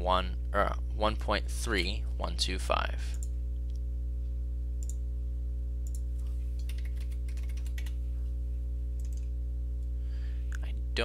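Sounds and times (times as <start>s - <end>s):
low electrical hum: 0.0s - 11.0s
computer mouse clicks: 5.8s - 6.0s, 9.0s - 9.3s.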